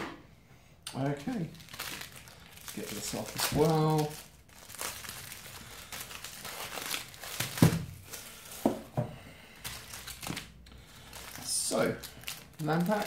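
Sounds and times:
plastic wrap crinkling: 0:01.0 - 0:13.0.

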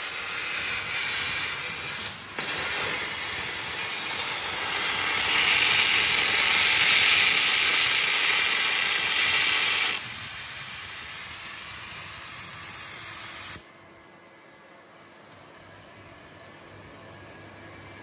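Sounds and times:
carbon arc hiss and crackle: 0:00.1 - 0:13.6.

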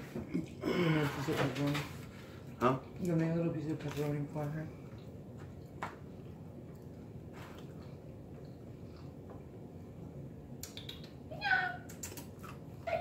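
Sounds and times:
man chewing: 0:04.8 - 0:09.6, 0:11.9 - 0:12.8
mouth smacks: 0:10.6 - 0:11.2, 0:11.9 - 0:12.6.

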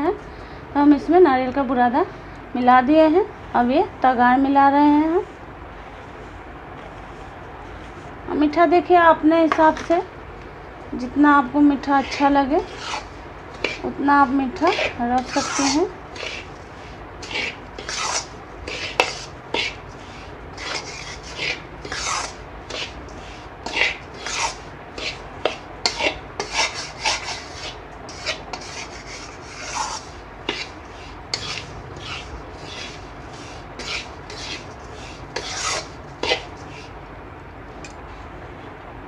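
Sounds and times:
metal spoon scraping pan: 0:11.7 - 0:36.9.

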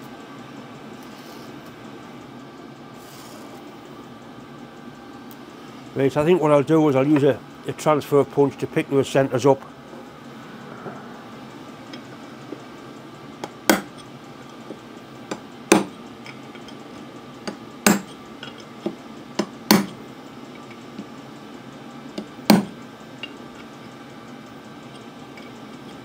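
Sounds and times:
hammer tapping metal punch: 0:13.4 - 0:16.8, 0:17.4 - 0:20.0, 0:22.1 - 0:23.4.

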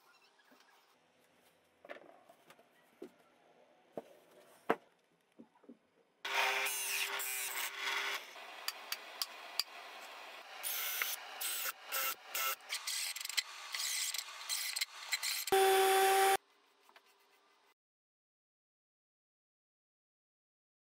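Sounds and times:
cordless drill boring wood: 0:06.3 - 0:16.4
drill press cutting wood: 0:06.3 - 0:16.4.

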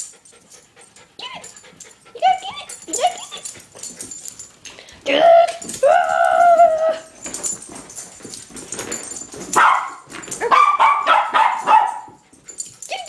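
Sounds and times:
small dog barking and yipping: 0:09.5 - 0:12.2.

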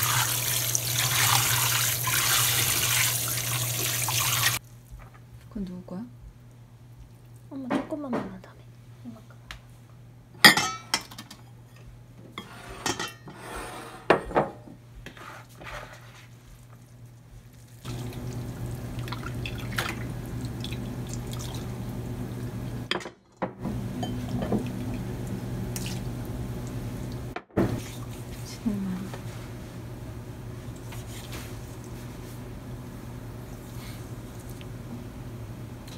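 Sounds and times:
broth splashing into bowls: 0:00.0 - 0:04.6, 0:17.6 - 0:22.9, 0:23.9 - 0:28.4
ceramic bowls clinking: 0:10.4 - 0:11.4, 0:24.0 - 0:24.8.

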